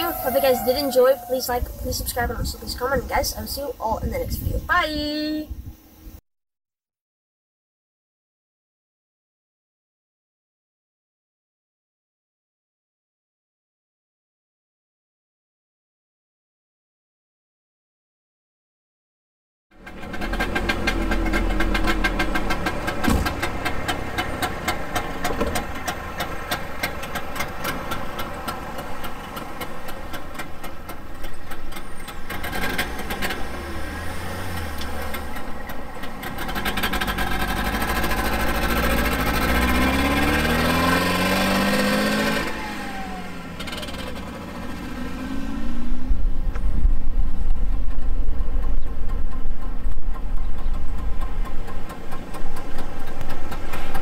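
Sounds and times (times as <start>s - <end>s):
two-stroke car engine running: 19.7s - 54.0s.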